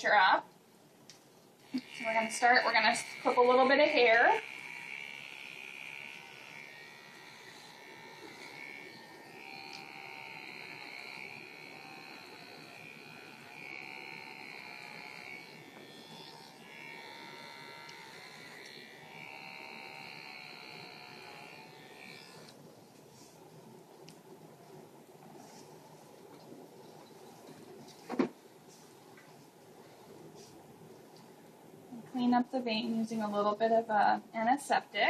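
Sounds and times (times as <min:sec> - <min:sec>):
electric hair clippers buzzing: 0:01.6 - 0:24.3.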